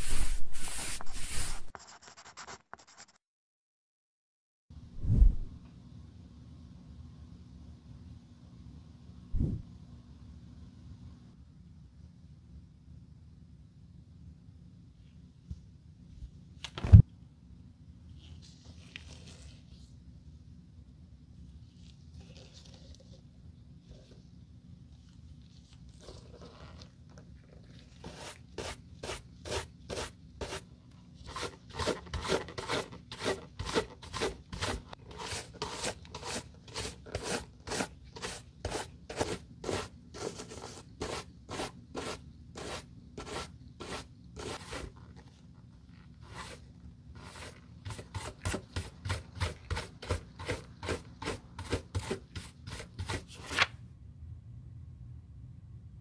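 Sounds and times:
shoe brush scrubbing leather: 0:00.0 - 0:01.7, 0:27.8 - 0:30.6, 0:31.3 - 0:45.0, 0:47.2 - 0:53.3.

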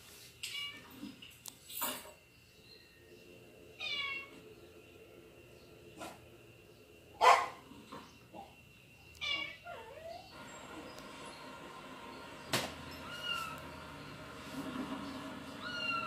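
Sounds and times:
cats meowing on television: 0:00.4 - 0:01.2, 0:03.7 - 0:04.4, 0:09.1 - 0:10.4, 0:12.8 - 0:14.0, 0:15.1 - 0:16.0.

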